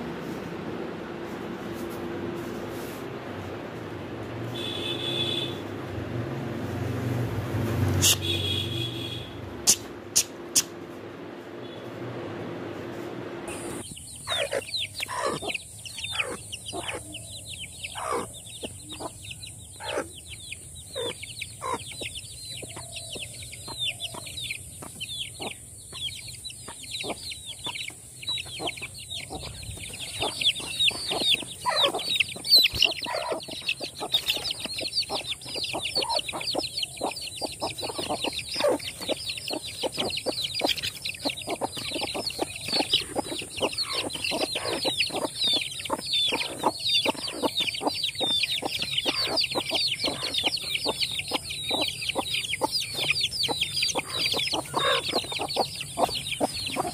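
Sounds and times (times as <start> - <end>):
chicks peeping: 12.9 - 56.9.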